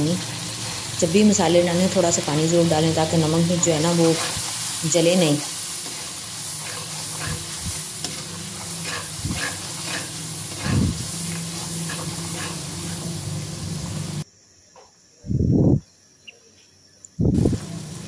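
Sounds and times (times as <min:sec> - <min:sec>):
masala sizzling in pan: 0:00.0 - 0:14.2, 0:17.4 - 0:18.0
metal spoon scraping pan: 0:05.8 - 0:13.1.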